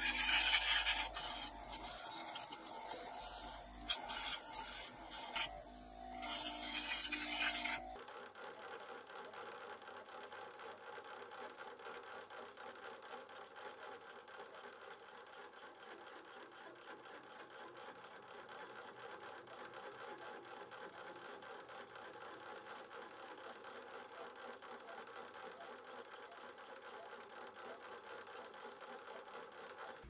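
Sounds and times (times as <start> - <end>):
saw blade whirring: 0.0 - 8.0.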